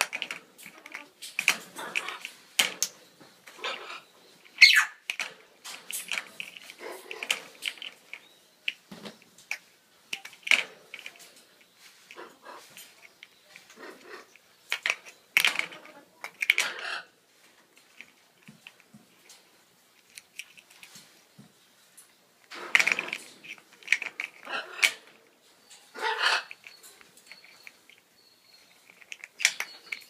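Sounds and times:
parrots growling calls: 0:01.8 - 0:02.3, 0:03.6 - 0:04.9, 0:13.7 - 0:14.3, 0:15.8 - 0:17.2, 0:24.4 - 0:25.1, 0:25.9 - 0:26.6.

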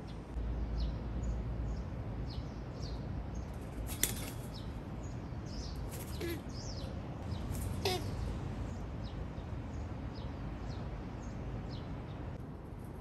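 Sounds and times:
small birds chirping: 0:00.0 - 0:12.4
dove wings flapping: 0:03.8 - 0:04.5
low background rumble: 0:04.4 - 0:13.0.

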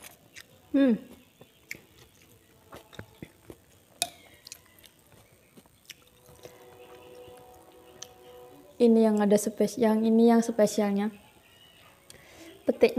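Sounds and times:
chewing and mouth sounds: 0:00.0 - 0:08.2
spoon clinking against bowl: 0:04.0 - 0:04.6.

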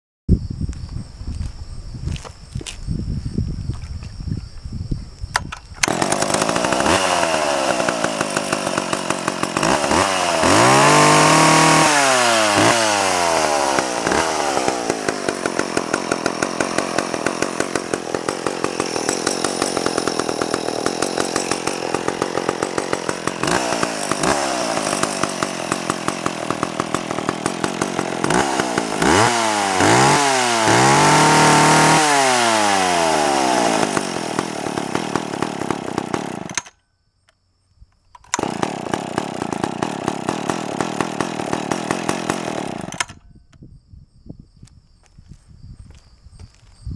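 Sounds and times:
chainsaw revving: 0:05.8 - 0:36.8, 0:38.3 - 0:43.2.

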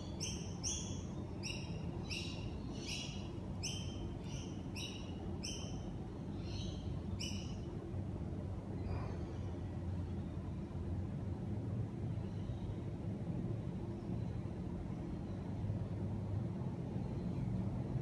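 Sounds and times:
bird chirping: 0:00.0 - 0:07.7.

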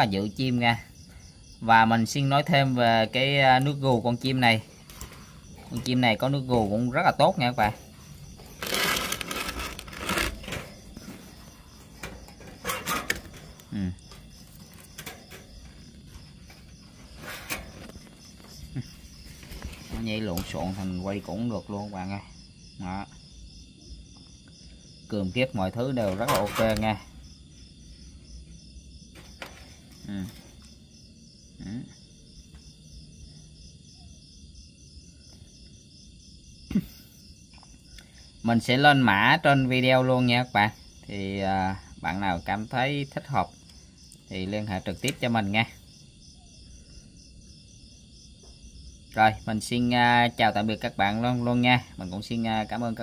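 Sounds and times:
crickets chirping: 0:00.0 - 0:53.0
phone handling scrapes and knocks: 0:08.3 - 0:13.6.

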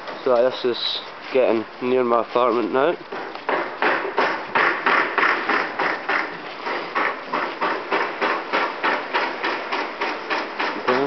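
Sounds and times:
scuffing footsteps: 0:00.0 - 0:03.5, 0:05.2 - 0:08.2.

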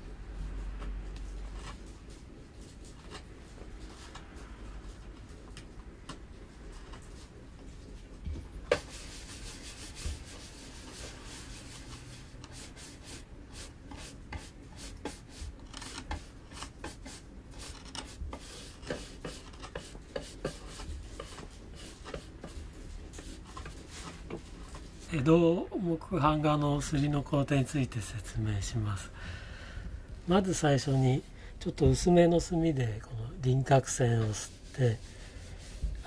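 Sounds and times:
carving knife scratching wood: 0:12.5 - 0:22.5.

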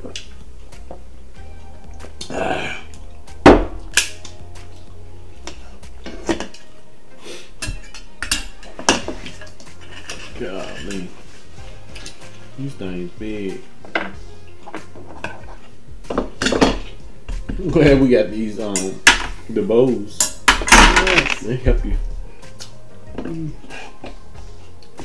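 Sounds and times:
metal spoon clinking tableware: 0:07.6 - 0:11.1, 0:20.2 - 0:21.4.

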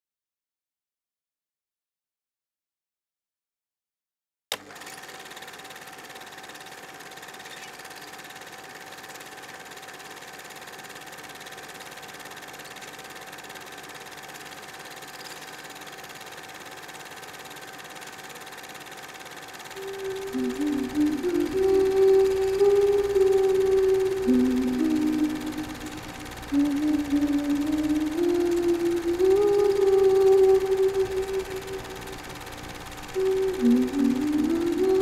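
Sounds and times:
mechanical whirring hum: 0:04.5 - 0:35.0
keyboard notes: 0:19.8 - 0:32.2, 0:33.1 - 0:35.0.

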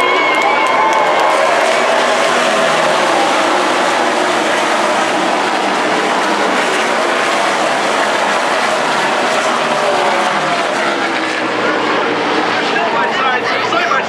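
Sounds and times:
race car engines at high revs: 0:00.0 - 0:13.7.

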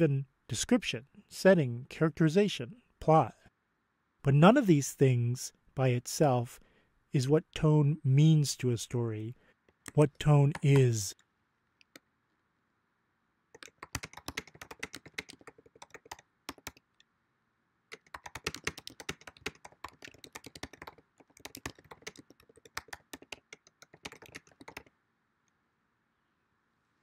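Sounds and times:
computer keyboard typing: 0:09.8 - 0:11.2, 0:13.5 - 0:16.9, 0:17.9 - 0:24.9.

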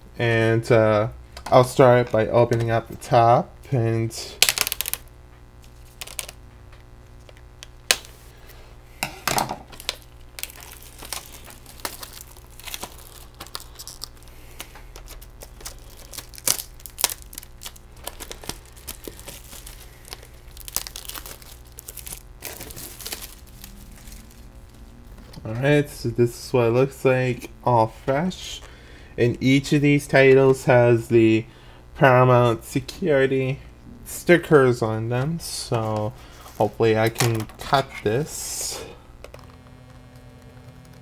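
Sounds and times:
plastic shrink-wrap tearing and crinkling: 0:04.3 - 0:06.4, 0:07.2 - 0:08.2, 0:09.3 - 0:25.4.

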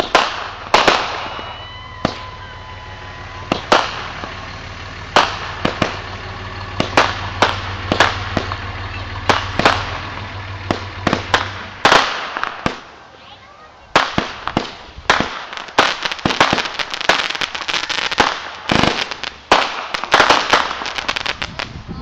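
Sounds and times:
low steady hum: 0:00.0 - 0:11.8
fireworks bangs and pops: 0:00.0 - 0:22.0
thin high whistle: 0:01.1 - 0:04.6.

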